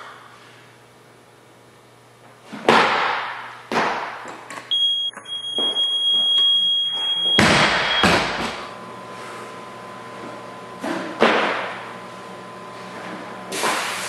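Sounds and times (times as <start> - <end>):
steady high electronic beep: 4.7 - 8.2
barbell crashing onto platform: 7.4 - 8.6
feet slamming onto platform: 7.4 - 8.6.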